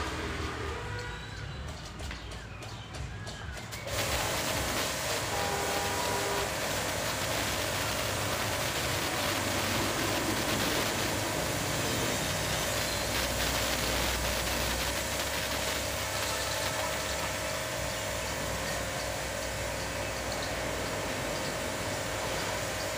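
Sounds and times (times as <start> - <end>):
water jet spraying: 0.0 - 22.9
pressure washer motor hum: 3.6 - 22.9.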